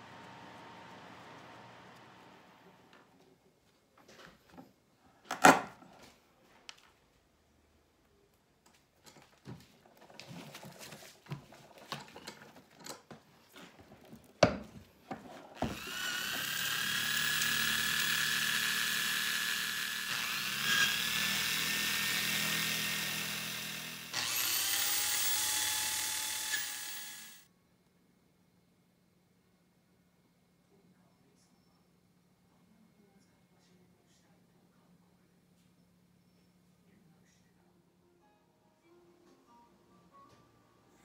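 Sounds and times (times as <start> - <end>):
small electric motor whining: 15.6 - 27.4.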